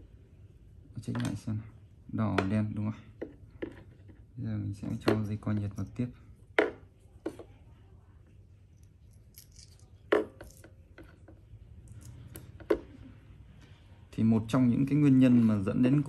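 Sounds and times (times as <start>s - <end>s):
wires and parts rattling: 3.2s - 7.5s, 8.7s - 13.1s.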